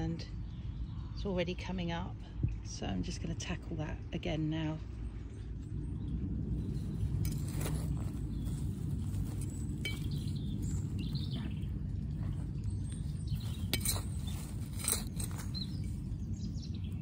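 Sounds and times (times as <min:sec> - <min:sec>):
trowel scraping soil and stones: 0:07.1 - 0:11.7, 0:12.3 - 0:17.0.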